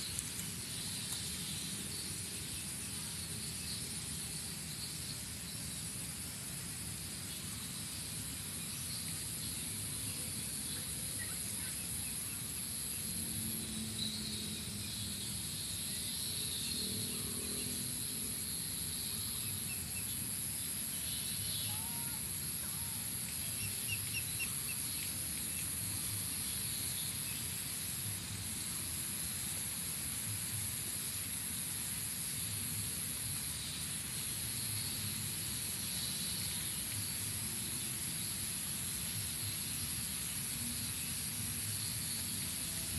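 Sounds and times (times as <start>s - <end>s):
faint chirps and calls: 21.0s - 25.7s.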